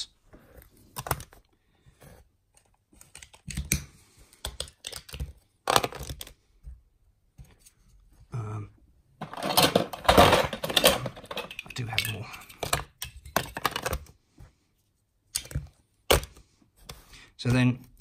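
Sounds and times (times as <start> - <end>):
plastic bricks knocking and clicking: 2.6 - 6.4, 9.2 - 14.2.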